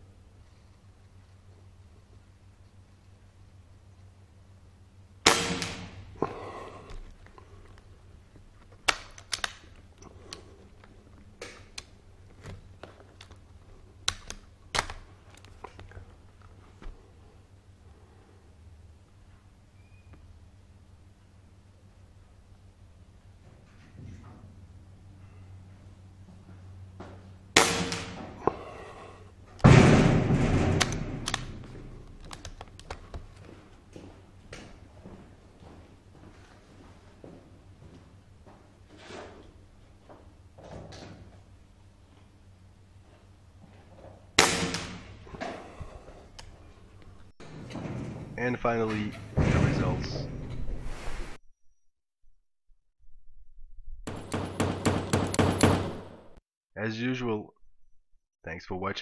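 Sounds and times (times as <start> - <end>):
air rifle shot: 5.2 - 6.1, 27.6 - 28.3, 44.4 - 45.2
rifle handling clicks and knocks: 8.6 - 17.0, 30.6 - 33.5.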